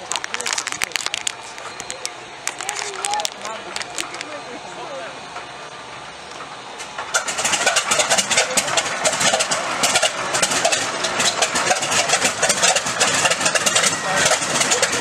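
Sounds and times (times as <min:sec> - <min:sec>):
exhaust popping: 0:00.0 - 0:15.0
radial engine running unevenly: 0:00.0 - 0:15.0.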